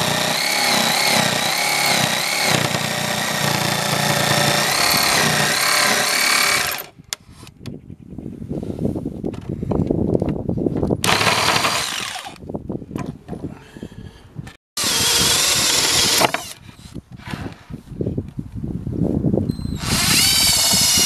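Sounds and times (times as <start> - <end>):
jigsaw cutting wood: 0.0 - 6.9, 11.0 - 12.4, 14.8 - 16.6, 19.8 - 21.0.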